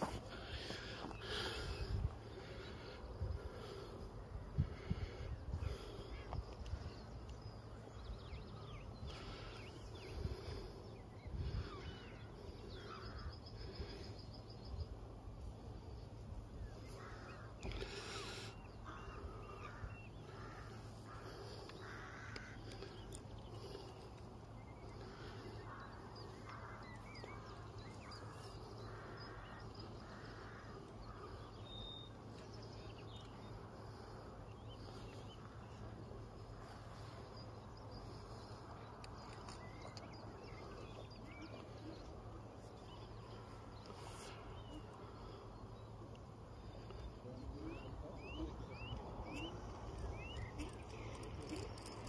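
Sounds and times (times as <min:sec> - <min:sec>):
small birds chirping: 0:00.0 - 0:52.0
crow cawing: 0:16.9 - 0:23.8, 0:25.0 - 0:27.4, 0:28.1 - 0:31.6.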